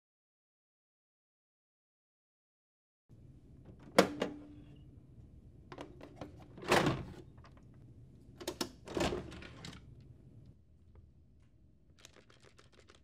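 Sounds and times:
printer plastic clicks and clunks: 3.8s - 4.4s, 8.4s - 9.8s.

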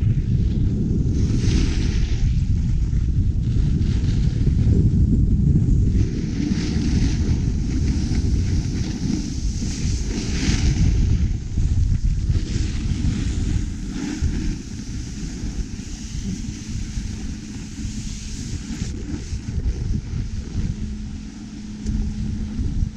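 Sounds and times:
wind buffeting microphone: 0.0s - 22.9s
ski edges scraping packed snow: 6.0s - 11.1s, 12.2s - 21.4s.

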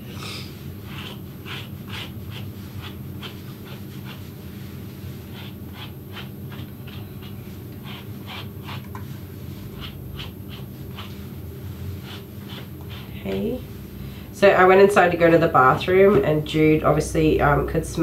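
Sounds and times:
brush strokes through fur: 1.9s - 14.1s.

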